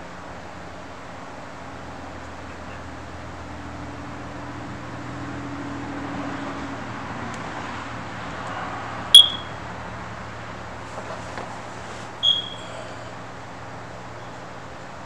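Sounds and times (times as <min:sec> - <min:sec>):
loud high-pitched beep: 0:09.2 - 0:09.6, 0:12.2 - 0:12.7.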